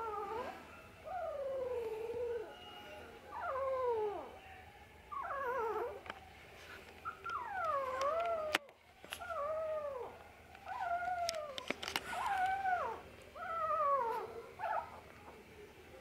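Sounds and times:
puppies crying: 7.1s - 15.0s.

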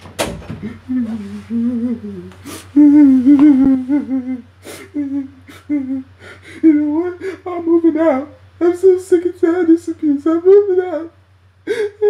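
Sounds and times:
door shutting: 0.0s - 0.8s
man moaning wails: 0.6s - 12.0s
man sobbing: 0.6s - 12.0s.

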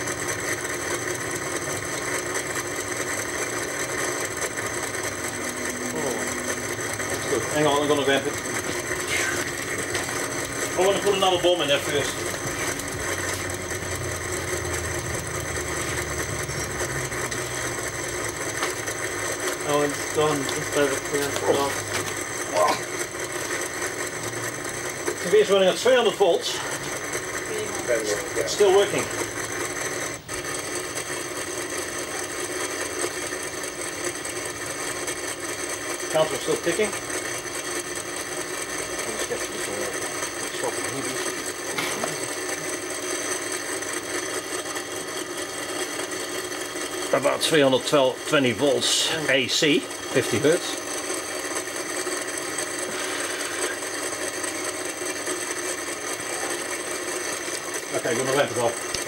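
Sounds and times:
mechanical whirring of counter: 0.0s - 59.0s
television buzzing with high tones: 0.0s - 59.0s.

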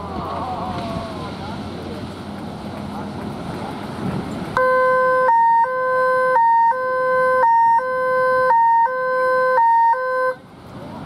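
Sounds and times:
electronic two-tone siren: 4.6s - 10.4s.

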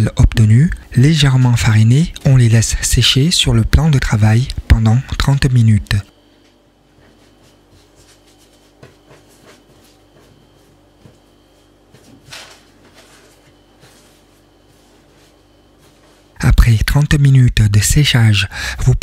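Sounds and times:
faint steady hum: 0.0s - 19.0s
pasta rustling by hand: 6.9s - 16.4s.

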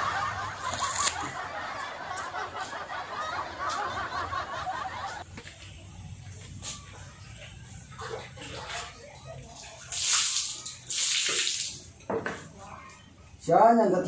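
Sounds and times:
group of people laughing: 0.0s - 5.3s.

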